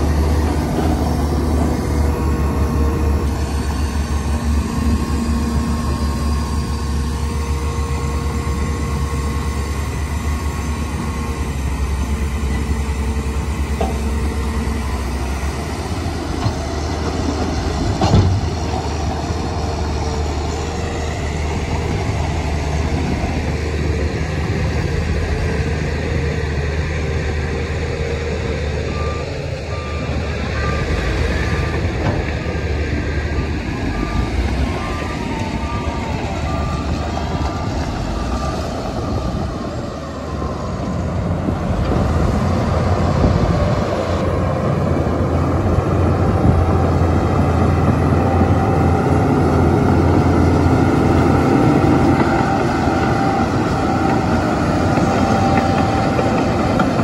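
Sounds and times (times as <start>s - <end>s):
heavy diesel machinery running: 0.0s - 57.0s
reversing alarm beeping: 28.7s - 41.3s.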